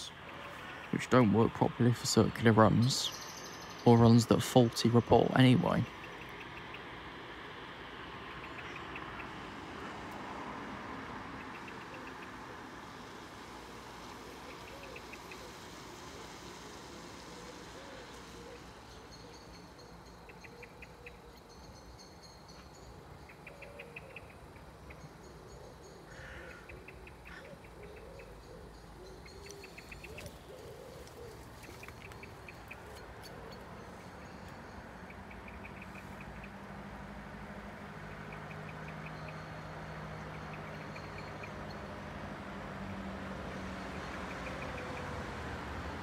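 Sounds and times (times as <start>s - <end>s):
birds twittering: 0.0s - 42.4s, 43.4s - 46.0s
low wavering cooing: 11.4s - 19.6s, 23.3s - 24.6s, 25.2s - 36.5s.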